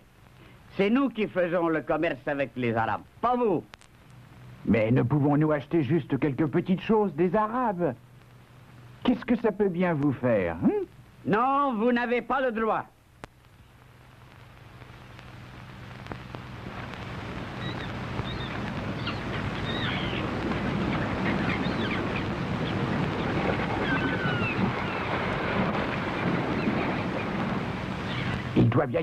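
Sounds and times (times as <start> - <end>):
wind: 0.0 - 29.0
surf: 14.2 - 29.0.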